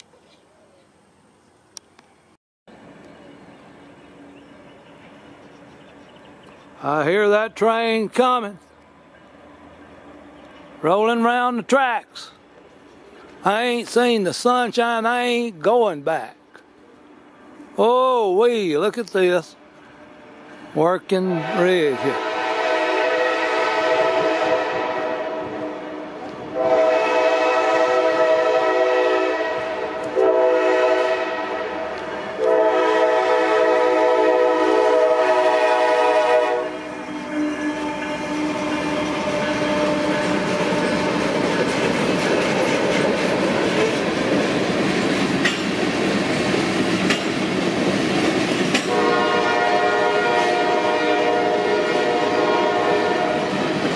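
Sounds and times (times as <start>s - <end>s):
freight cars rumbling on rails: 2.7s - 53.9s
locomotive air horn: 21.3s - 41.5s, 48.9s - 53.6s.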